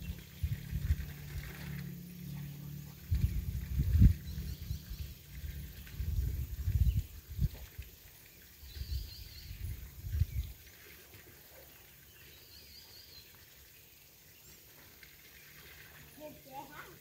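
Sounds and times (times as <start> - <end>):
low rumbling on microphone: 0.0 - 8.0, 8.6 - 10.7
bird chirping: 1.8 - 6.0.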